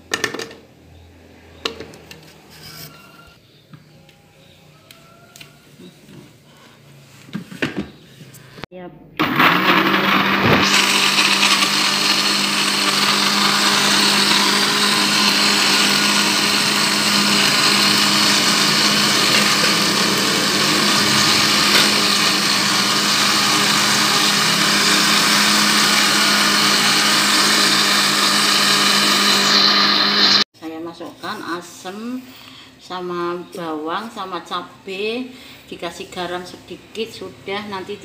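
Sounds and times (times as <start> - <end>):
blender motor humming: 9.2 - 30.5.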